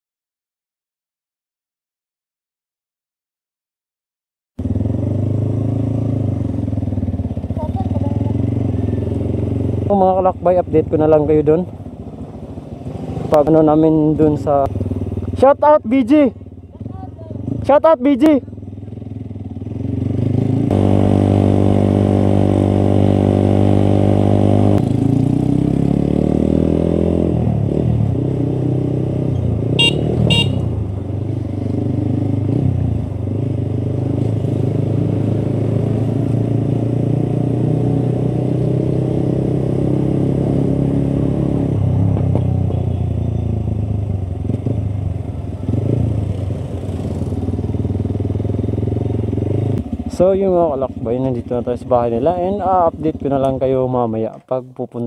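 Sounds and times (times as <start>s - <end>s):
motorcycle engine running: 4.6s - 54.0s
road noise: 4.6s - 55.0s
horn beeps: 29.7s - 30.7s.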